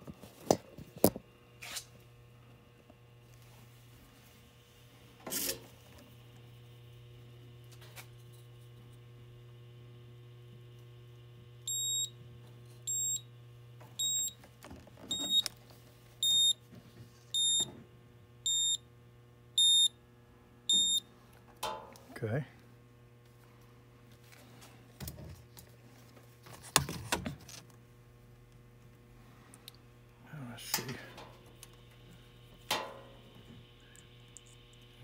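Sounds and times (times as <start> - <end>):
steady low hum: 0.0 - 35.0
multimeter beeping: 11.7 - 12.1, 12.9 - 13.3, 14.0 - 14.4, 15.1 - 15.5, 16.2 - 16.6, 17.4 - 17.7, 18.4 - 18.8, 19.6 - 20.0, 20.7 - 21.0.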